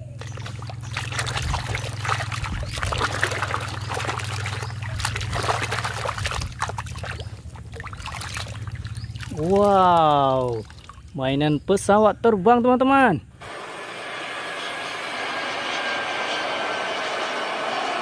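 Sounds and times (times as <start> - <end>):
water sloshing in metal basin: 0.1 - 11.2.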